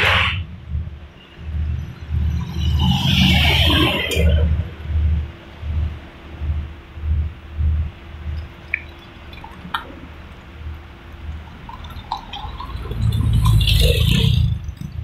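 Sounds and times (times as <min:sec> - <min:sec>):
passing cars: 0:00.0 - 0:06.8
faint steady hum: 0:03.5 - 0:15.0.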